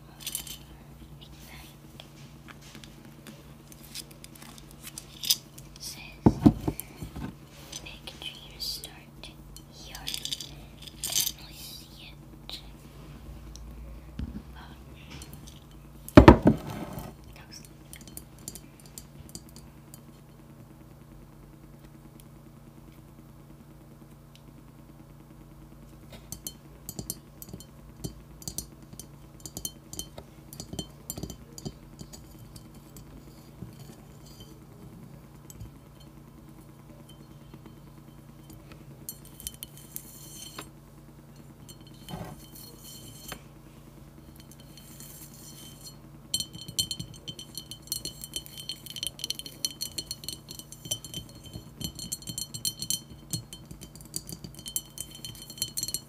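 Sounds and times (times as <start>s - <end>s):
fingernails tapping on ceramic: 44.3s - 56.0s.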